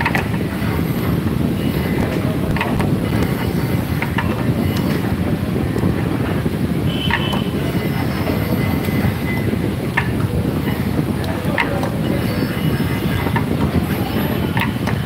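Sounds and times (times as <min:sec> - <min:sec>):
low mechanical rumble: 0:00.0 - 0:15.0
clicks: 0:01.8 - 0:05.1, 0:11.2 - 0:15.0.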